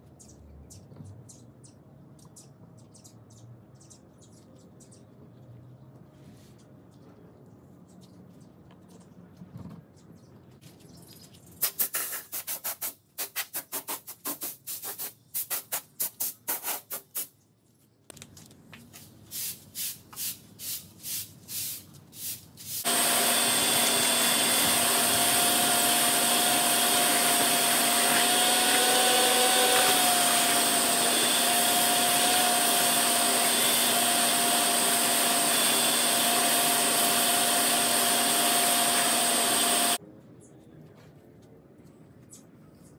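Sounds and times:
loud quick rhythmic strokes: 0:11.6 - 0:17.4
shop vacuum running: 0:22.8 - 0:40.0.

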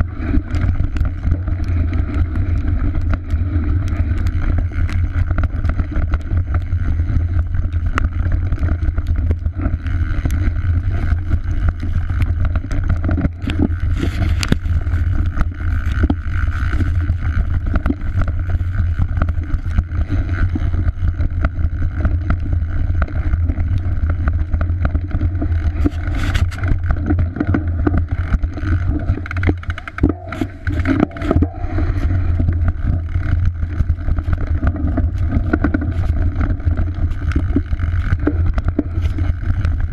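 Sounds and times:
bike chain and frame rattling: 0:00.0 - 0:39.9
wind rumble on microphone: 0:00.0 - 0:39.9.

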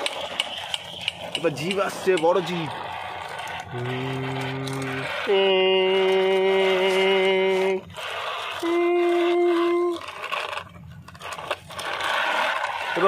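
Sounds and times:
scraping and rustling: 0:00.0 - 0:13.0
person humming: 0:03.7 - 0:07.8, 0:08.6 - 0:10.0.

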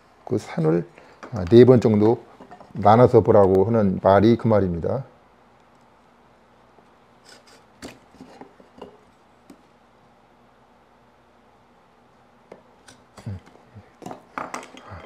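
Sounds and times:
knife scoring wood: 0:07.2 - 0:08.5.

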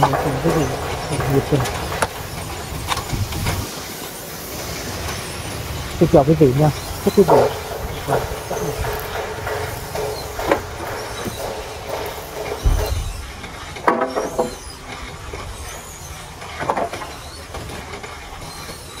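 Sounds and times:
logs knocking and clattering: 0:00.0 - 0:03.7, 0:06.8 - 0:14.8
debarking machine rumbling: 0:00.0 - 0:19.0.

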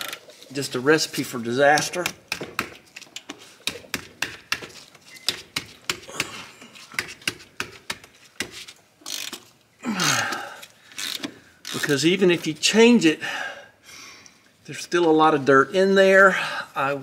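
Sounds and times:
ratchet wrench clicking: 0:09.0 - 0:09.4, 0:10.9 - 0:11.9.

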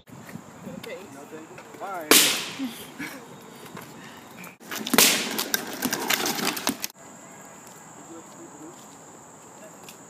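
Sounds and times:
balloon bursting with sharp bang: 0:02.1 - 0:02.6, 0:04.9 - 0:05.4.

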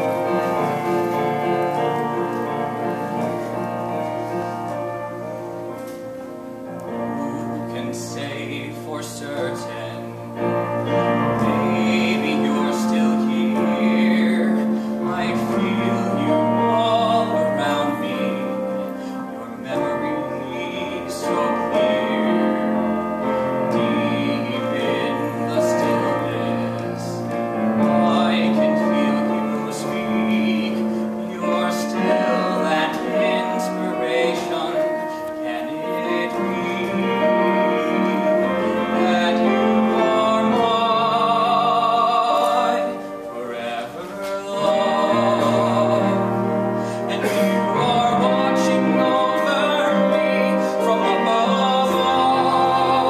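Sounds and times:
piano accompaniment: 0:00.0 - 0:53.0
young man singing ballad: 0:11.4 - 0:22.9, 0:23.5 - 0:53.0.

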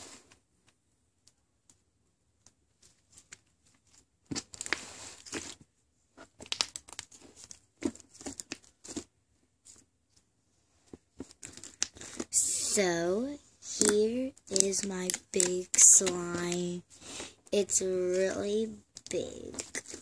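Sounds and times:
slime crackling and squishing: 0:06.4 - 0:09.0, 0:11.3 - 0:20.0.

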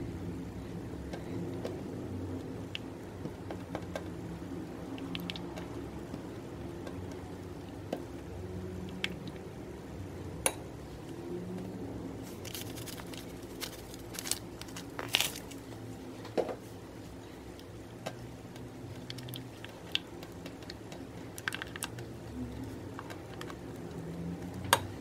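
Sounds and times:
spatula stirring wet slime: 0:18.2 - 0:24.6.

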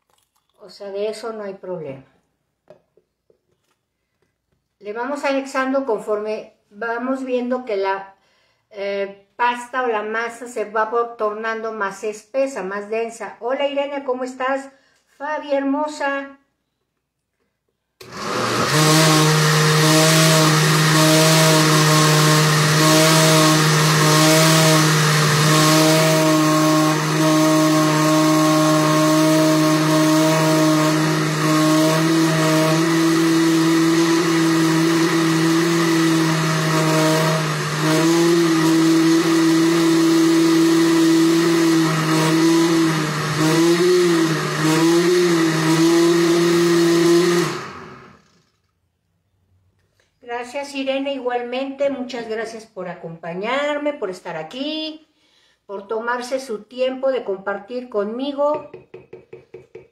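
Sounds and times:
blender motor running: 0:18.0 - 0:48.6.

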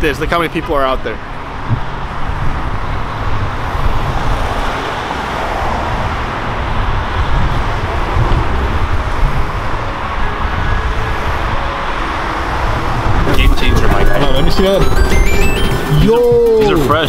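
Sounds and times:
street traffic: 0:00.0 - 0:17.0
wind buffeting microphone: 0:01.2 - 0:14.1.

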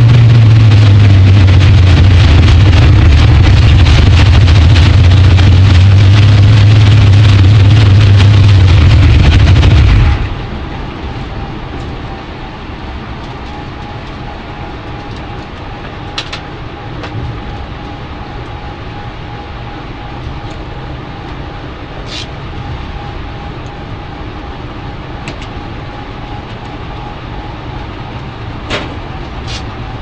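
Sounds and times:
drag car engine running loud: 0:00.0 - 0:11.9
quiet steady rumble: 0:00.0 - 0:30.0
thin steady whine: 0:00.0 - 0:30.0.

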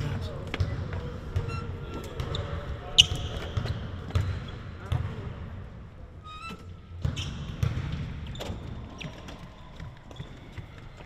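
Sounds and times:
basketballs bouncing on court: 0:00.3 - 0:05.5, 0:06.9 - 0:11.0
high squeak: 0:06.2 - 0:06.7.

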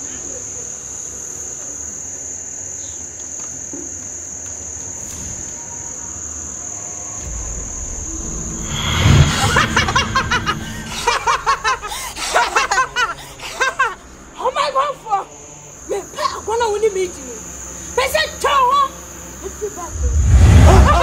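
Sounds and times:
crickets chirping: 0:00.0 - 0:21.0
whoosh and loud boom: 0:07.2 - 0:11.9, 0:19.9 - 0:21.0.

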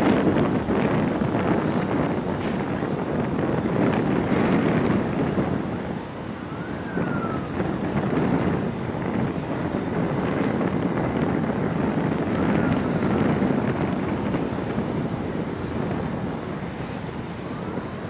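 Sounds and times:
low harbour rumble: 0:00.0 - 0:18.0
wind buffeting microphone: 0:00.0 - 0:18.0.

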